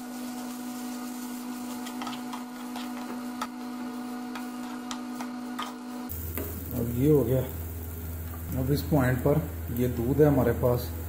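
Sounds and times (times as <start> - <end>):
steady humming drone: 0.0 - 11.0.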